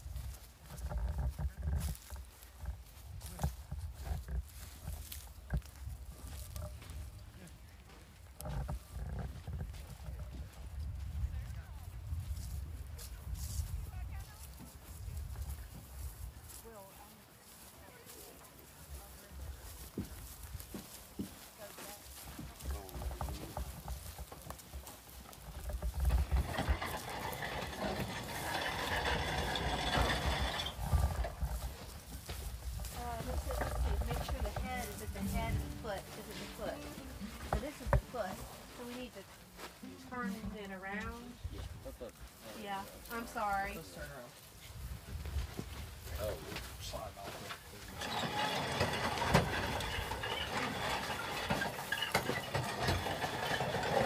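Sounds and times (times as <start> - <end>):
wind rumbling on microphone: 8.3 - 16.6, 29.5 - 35.9, 44.5 - 47.0
rattling scraping metal: 22.9 - 41.4, 47.5 - 54.0
metal clanks and knocks: 25.6 - 31.7, 32.3 - 39.0, 47.9 - 54.0.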